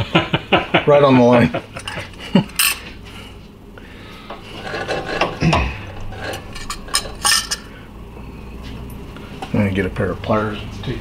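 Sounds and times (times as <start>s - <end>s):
broken glass scraping and clinking: 4.6s - 7.8s.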